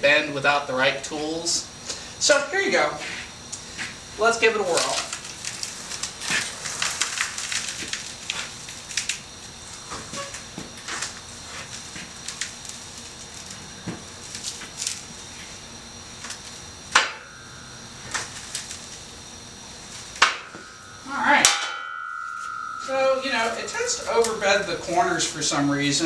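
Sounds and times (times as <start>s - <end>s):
loud metallic clang ringing: 16.9s - 19.6s, 20.2s - 26.0s
metallic clanks: 20.2s - 25.6s.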